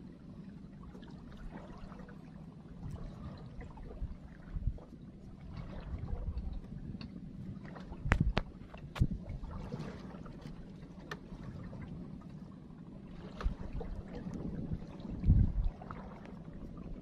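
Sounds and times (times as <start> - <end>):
low wind rumble: 0.0 - 17.0
water slapping against boat hull: 0.9 - 12.4, 13.0 - 17.0
sharp knocks on hull: 8.0 - 9.2.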